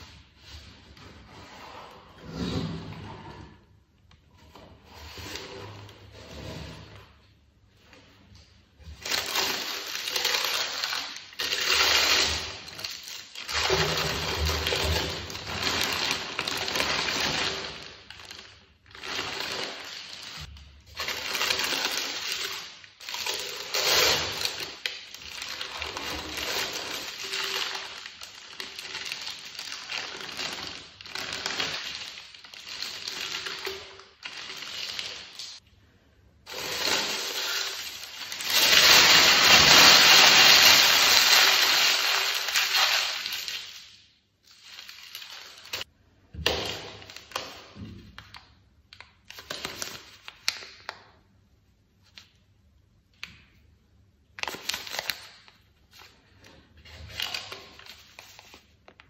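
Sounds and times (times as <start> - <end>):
tissue paper and plastic crinkling: 8.9 - 35.6, 36.5 - 45.9, 54.4 - 59.0.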